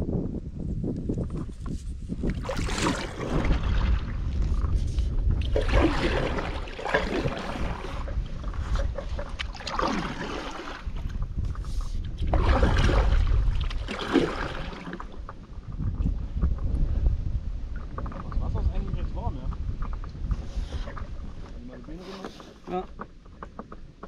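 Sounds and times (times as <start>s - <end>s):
wind rumble on microphone: 0.0s - 24.0s
paddle swishing through water: 1.3s - 15.8s.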